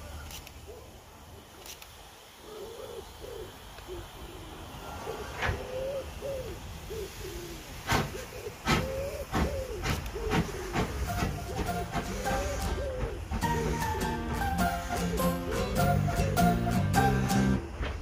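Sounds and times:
bird calling: 0:02.4 - 0:18.0
steam locomotive exhaust beats: 0:07.7 - 0:18.0.

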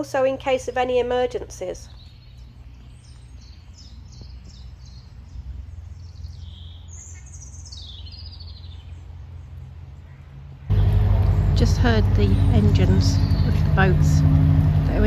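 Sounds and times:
songbird singing: 0:00.0 - 0:15.0
low steady hum: 0:09.0 - 0:15.0.

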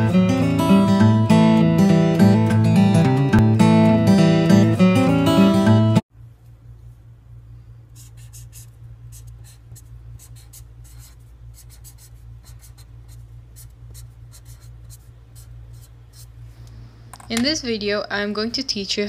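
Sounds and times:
steady low hum: 0:06.1 - 0:19.0
marker scratching on paper: 0:08.0 - 0:16.4.

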